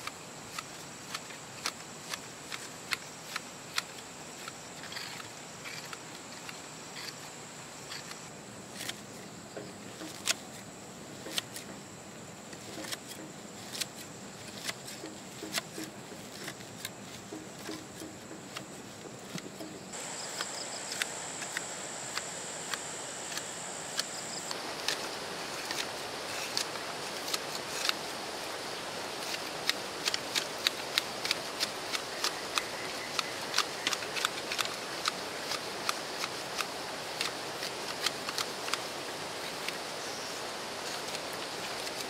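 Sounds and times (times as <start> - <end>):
steady hiss: 0.0 - 42.0
sharp ticks and taps: 14.6 - 25.0.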